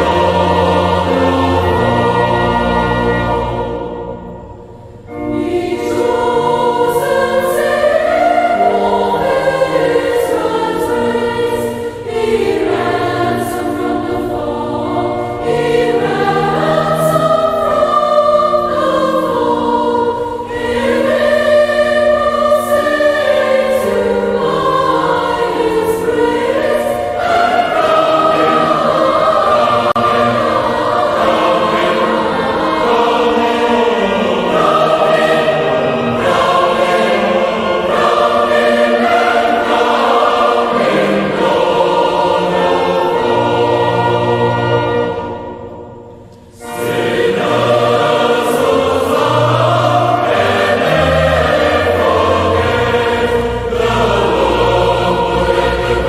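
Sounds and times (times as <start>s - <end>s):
choir singing: 0.0s - 56.0s.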